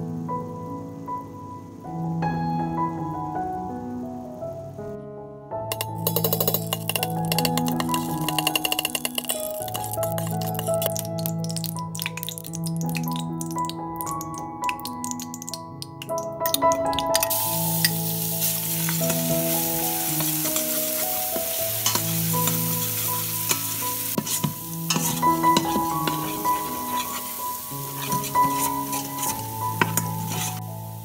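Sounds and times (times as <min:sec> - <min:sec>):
metal spoon scraping pot: 0:05.7 - 0:13.0, 0:24.2 - 0:30.6
garlic sizzling in hot fat: 0:05.7 - 0:31.0.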